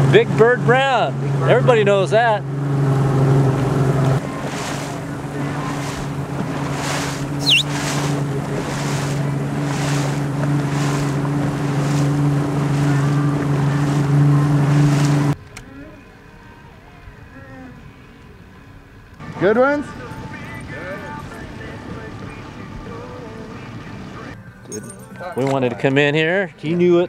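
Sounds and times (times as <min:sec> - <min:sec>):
boat motor running: 0:00.0 - 0:24.4
wind and water rushing: 0:00.8 - 0:15.4
brief high whistle: 0:07.4 - 0:07.8.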